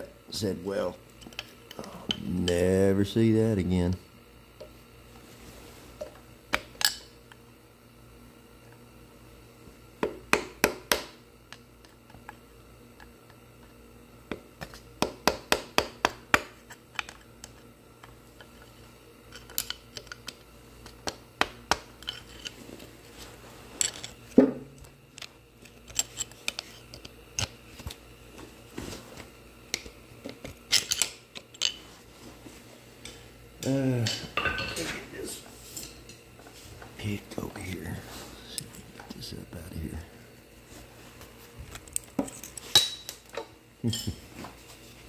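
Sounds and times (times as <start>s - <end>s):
metal tools scraping and tapping: 34.1s - 35.0s.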